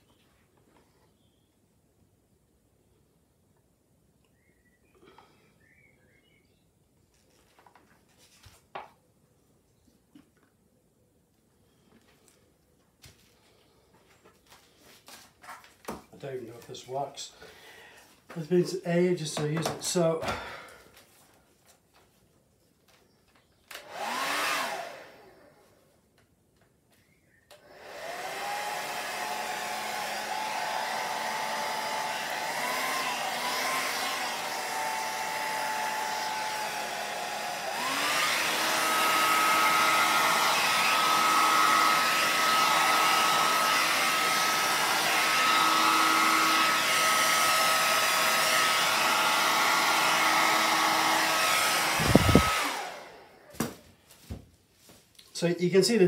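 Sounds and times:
hairdryer blowing air: 18.0s - 20.8s, 23.7s - 25.8s, 27.5s - 53.8s.

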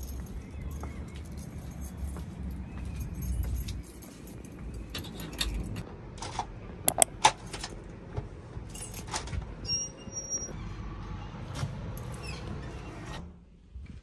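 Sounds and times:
keys jangling: 3.2s - 5.8s
key clicking in metal door lock: 6.9s - 7.1s.

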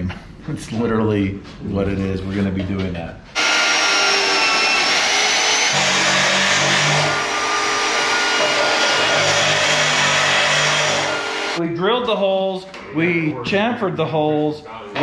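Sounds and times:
cutter boring through steel: 3.4s - 11.6s
drill motor whine: 3.4s - 11.6s.

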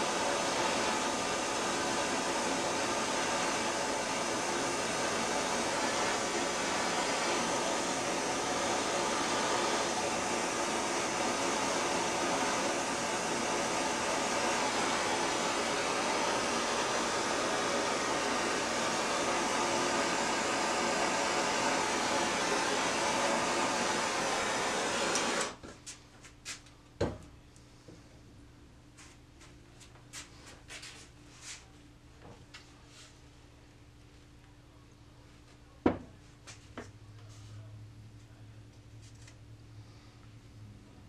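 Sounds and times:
gas torch hissing: 0.0s - 25.6s.

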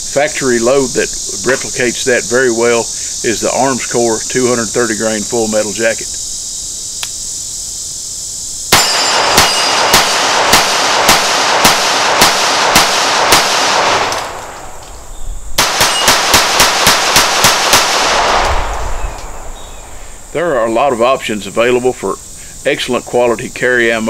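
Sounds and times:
crickets chirring: 0.0s - 24.0s
pistol shots: 8.7s - 14.7s, 15.6s - 19.4s.

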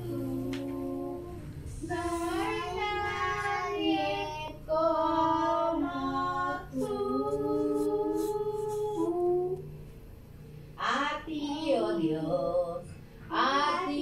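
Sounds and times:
children singing worship song: 0.0s - 9.6s.

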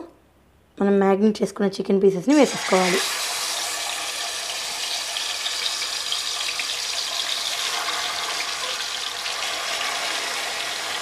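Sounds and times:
chicken sizzling in hot oil: 2.3s - 11.0s.

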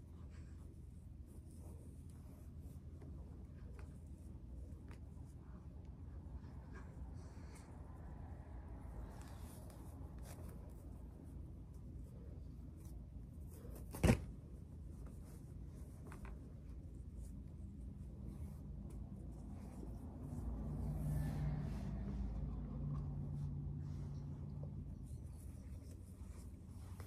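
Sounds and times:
hair rustling: 0.0s - 27.0s
low room rumble: 0.0s - 27.0s
low hum: 14.6s - 27.0s.

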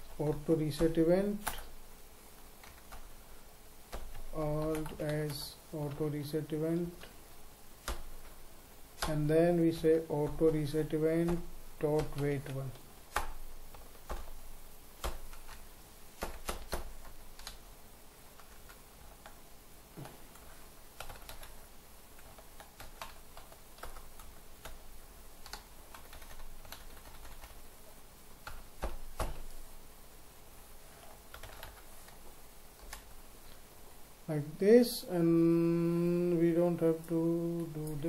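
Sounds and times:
typing on a computer keyboard: 3.9s - 6.0s, 7.8s - 8.2s, 9.0s - 14.4s, 15.0s - 15.6s, 16.2s - 17.6s, 20.3s - 21.6s, 22.2s - 24.8s, 25.4s - 27.6s, 28.4s - 29.6s, 31.3s - 31.9s.

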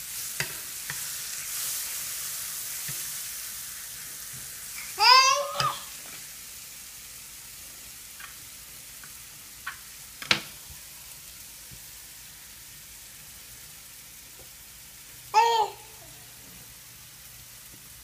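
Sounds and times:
mushrooms sizzling in a pan: 0.0s - 18.0s.

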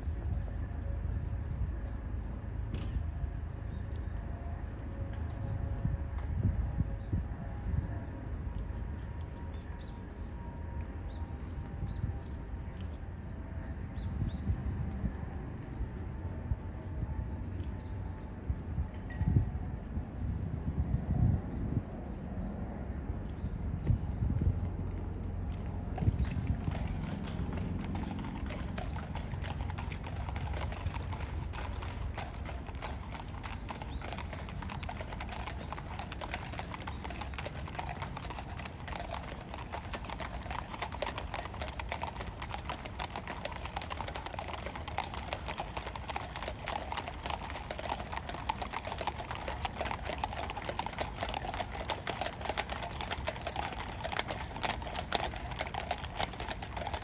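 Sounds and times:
horse hooves on stone: 25.5s - 57.0s.

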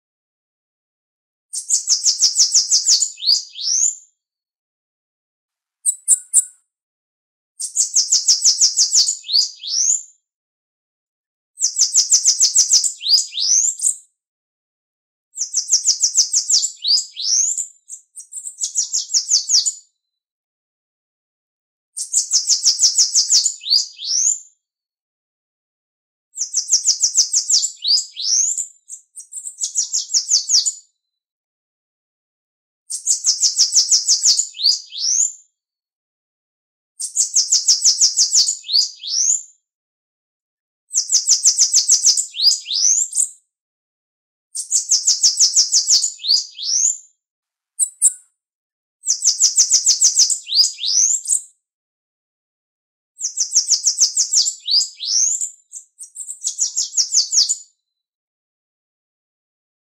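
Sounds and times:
bird trilling song: 1.5s - 4.0s, 5.8s - 6.6s, 7.6s - 10.0s, 11.6s - 14.0s, 15.4s - 19.8s, 22.0s - 24.4s, 26.4s - 30.8s, 32.9s - 35.3s, 37.0s - 39.4s, 41.0s - 43.3s, 44.6s - 47.0s, 47.8s - 48.3s, 49.0s - 51.4s, 53.2s - 55.4s, 56.0s - 57.6s.

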